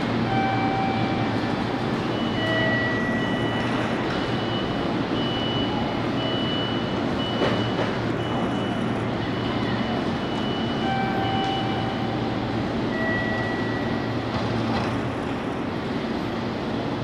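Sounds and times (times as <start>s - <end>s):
electric train equipment hum: 0.0s - 17.0s
faint high steady tones: 2.1s - 14.3s.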